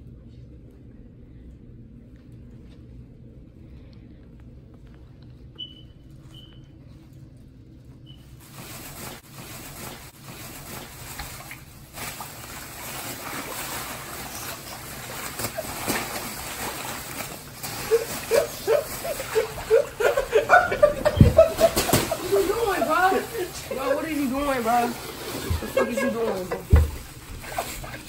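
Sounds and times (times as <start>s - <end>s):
water sloshing in plastic bag: 8.3s - 28.0s
person making rapid vocal sounds: 17.6s - 24.9s.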